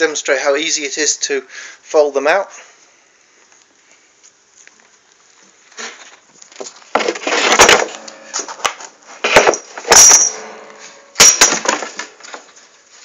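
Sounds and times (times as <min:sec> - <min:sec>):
metal frame bangs and clatters: 0:09.2 - 0:12.3.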